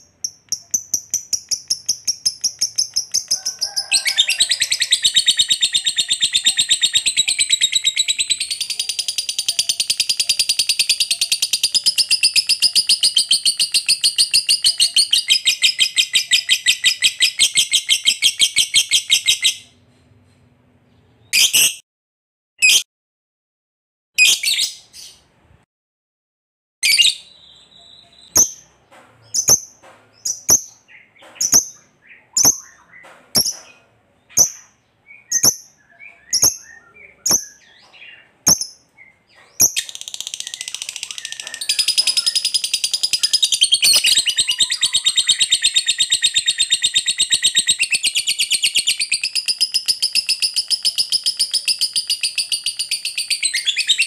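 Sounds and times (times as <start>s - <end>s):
bird rapid chattering trill: 0.0s - 19.3s, 39.4s - 54.0s
bird sharp chirps: 0.0s - 19.8s, 26.8s - 54.0s.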